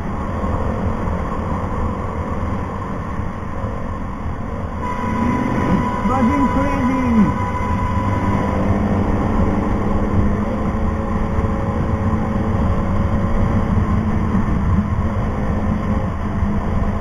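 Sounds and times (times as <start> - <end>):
low wind noise: 0.0 - 17.0
road rumble: 0.0 - 17.0
motorcycle engine cruising: 4.8 - 16.8.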